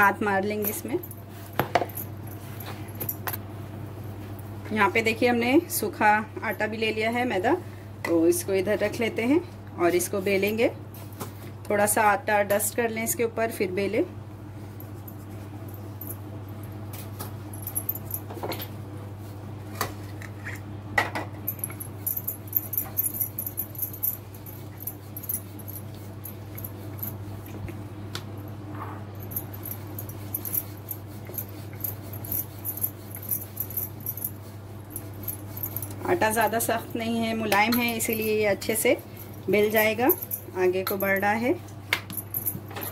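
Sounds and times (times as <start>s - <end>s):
glass bangles jingling: 17.6s - 18.3s, 21.5s - 27.2s, 29.2s - 36.9s, 37.6s - 41.4s.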